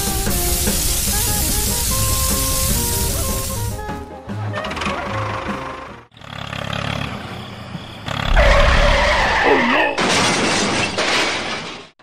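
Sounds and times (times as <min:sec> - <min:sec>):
low boom with falling screech: 0:08.3 - 0:09.4.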